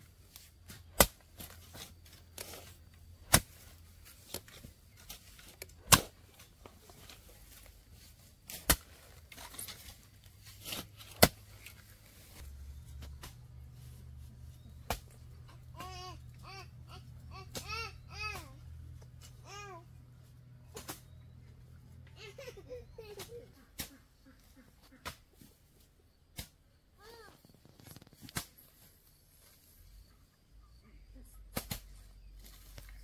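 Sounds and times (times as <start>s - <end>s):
sharp chopping strikes: 1.0s - 1.2s.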